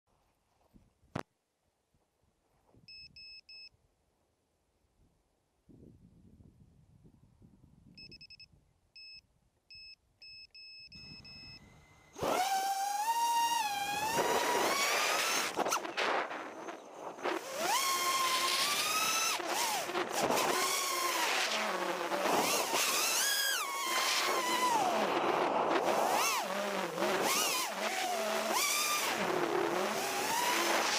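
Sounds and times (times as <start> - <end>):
high electronic beeps: 8.0 - 12.2
drone motors whining: 11.0 - 30.9.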